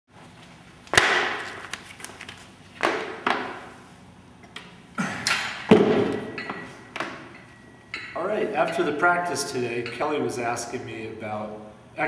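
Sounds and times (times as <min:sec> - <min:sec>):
gym equipment knocks and clanks: 0:05.0 - 0:08.9.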